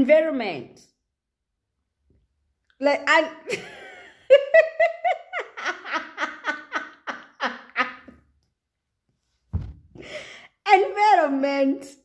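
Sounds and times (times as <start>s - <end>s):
woman laughing: 3.4s - 8.1s.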